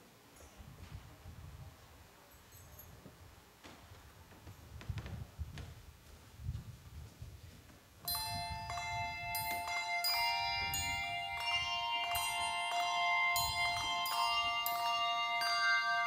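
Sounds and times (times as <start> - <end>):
handbells playing a melody: 8.0 - 16.0.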